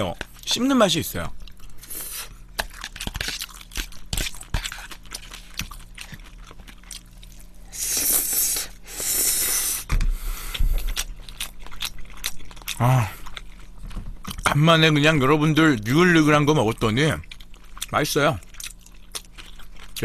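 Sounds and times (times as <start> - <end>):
wet chewing: 1.3 - 9.6, 10.4 - 14.6, 16.8 - 20.0.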